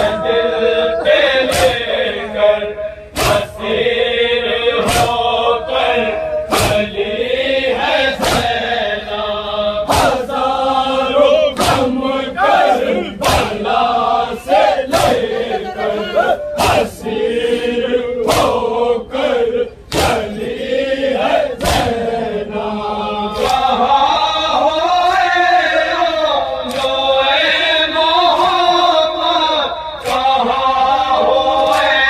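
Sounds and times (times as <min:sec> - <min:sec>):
sharp rhythmic strikes: 0:00.0 - 0:24.0
men chanting in chorus: 0:00.0 - 0:32.0.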